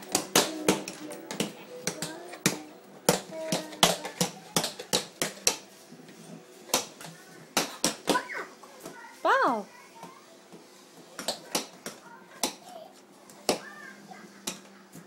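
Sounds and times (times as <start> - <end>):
tap shoes clicking on tile floor: 0.0 - 5.6.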